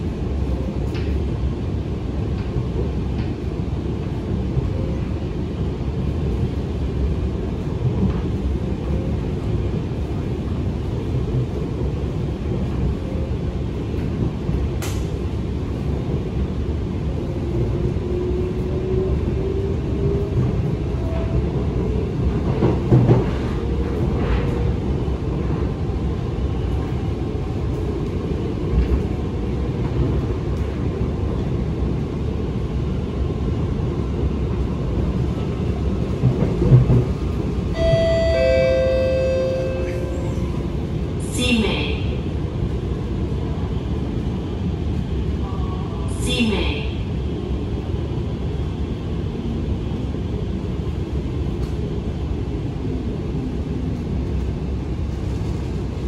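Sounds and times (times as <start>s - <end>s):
metro train rumbling on track: 0.0s - 56.0s.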